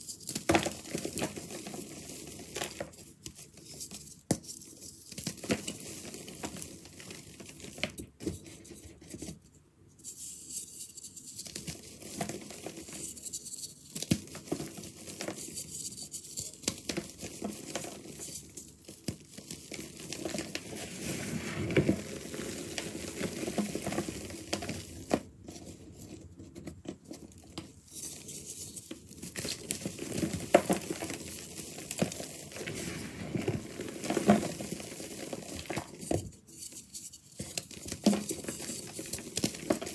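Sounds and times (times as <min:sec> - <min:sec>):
hands crushing dry powder blocks: 0:00.1 - 0:08.3, 0:11.3 - 0:25.4, 0:26.6 - 0:39.9.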